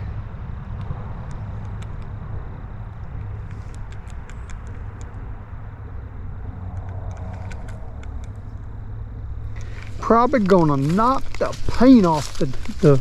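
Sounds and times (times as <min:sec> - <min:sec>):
low rumble: 0:00.0 - 0:13.0
faint small clicks: 0:02.9 - 0:05.2, 0:06.7 - 0:08.6.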